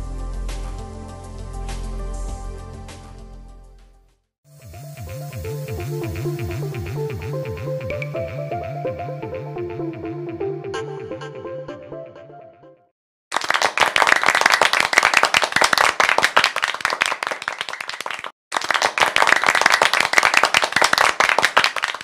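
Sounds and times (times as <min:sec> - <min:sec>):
applause: 0:13.3 - 0:22.0.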